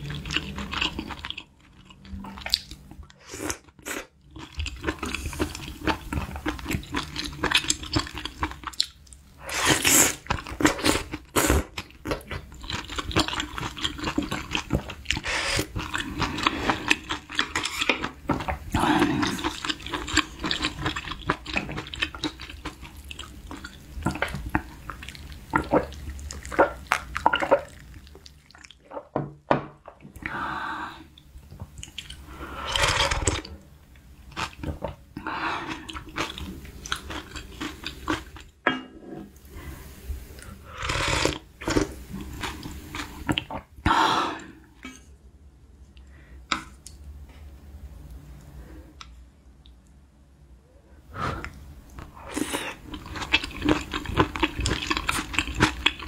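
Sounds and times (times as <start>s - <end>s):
slurping noodles and broth: 9.4s - 11.7s, 32.2s - 33.6s, 39.5s - 43.5s
wet chewing: 51.4s - 56.0s.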